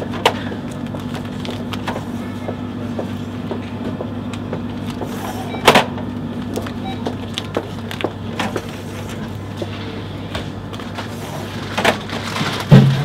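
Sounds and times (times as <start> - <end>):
paper packs rustling and tapping: 0.0 - 3.2, 5.7 - 9.8, 10.4 - 13.0
steady low hum: 0.0 - 13.0.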